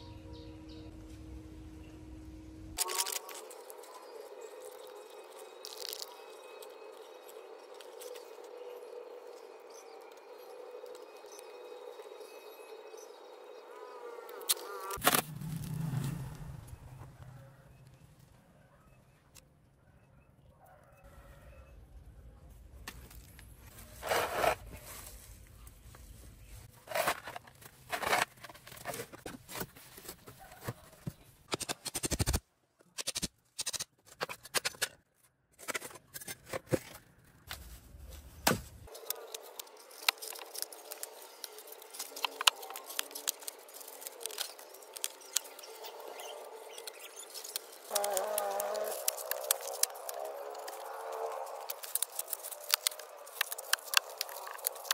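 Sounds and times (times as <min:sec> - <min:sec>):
knocks and scrapes: 0:26.6 - 0:32.1
floral foam crackling and crunching: 0:37.2 - 0:54.9.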